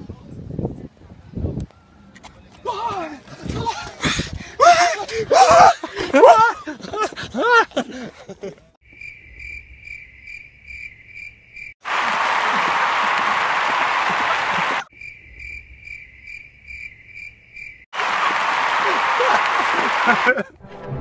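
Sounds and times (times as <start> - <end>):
cricket chirping: 8.8 - 11.8, 14.9 - 17.9.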